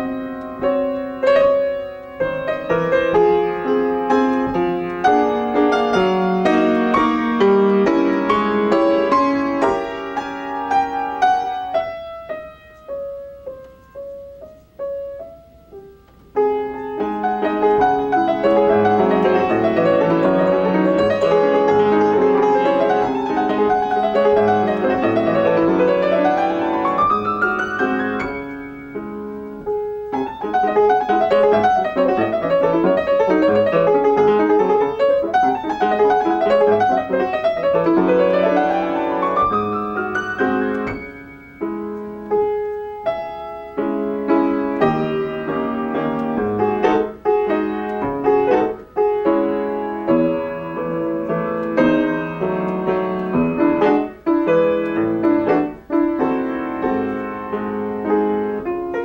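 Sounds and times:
solo grand piano: 0.0 - 59.0.

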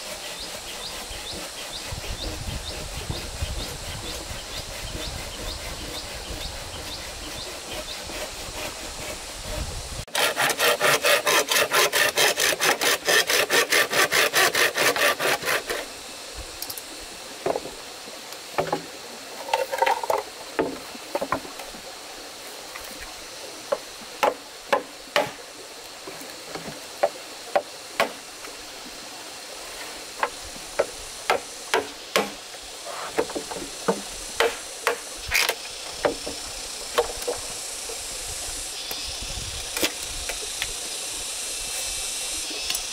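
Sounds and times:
hand saw cutting wood: 0.0 - 16.0, 23.7 - 25.4, 30.2 - 36.4
wood knocks and taps: 17.4 - 17.7, 19.5 - 21.6.

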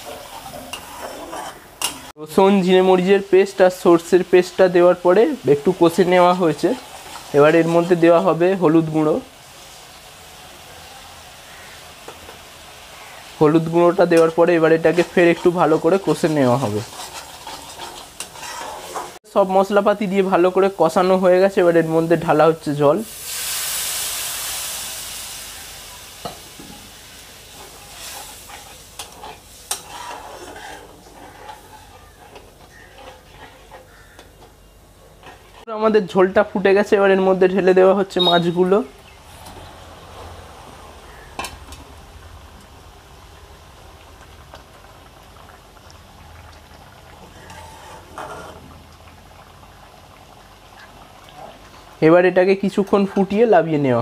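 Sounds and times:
metal spatula scraping pan: 0.0 - 2.1, 14.1 - 19.2, 27.4 - 34.4, 35.1 - 35.7, 47.3 - 48.7
water sizzling in hot oil: 0.0 - 35.7, 36.7 - 54.0
gravy bubbling in a pan: 20.0 - 35.7, 39.0 - 53.4.

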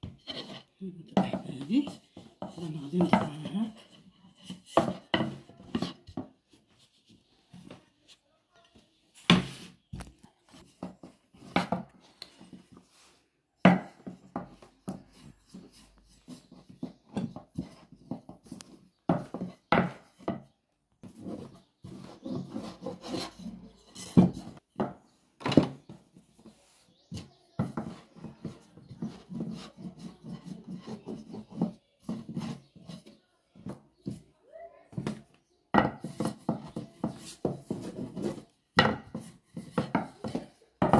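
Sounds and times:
wood knocking on wood: 0.0 - 6.4, 9.3 - 12.0, 13.7 - 26.2, 27.1 - 34.2, 34.9 - 40.9
rolling pin rolling dough: 0.0 - 7.8, 8.7 - 34.3, 34.9 - 40.9.

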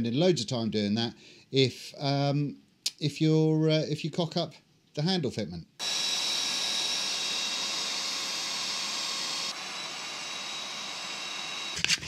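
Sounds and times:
belt sander whining: 5.8 - 12.0.

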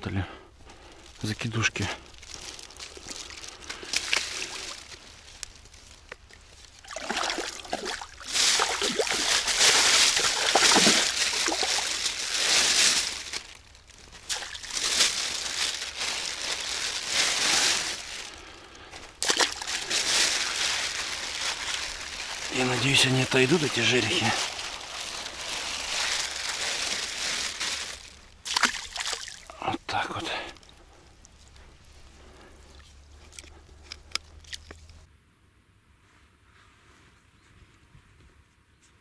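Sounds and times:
water sloshing and splashing: 2.2 - 18.3, 19.1 - 29.5, 32.6 - 35.0.

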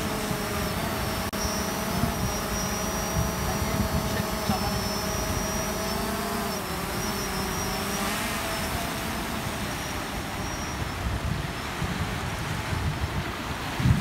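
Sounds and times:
drone propellers humming: 0.0 - 14.0
surf: 0.0 - 14.0
wind on microphone: 0.0 - 14.0.

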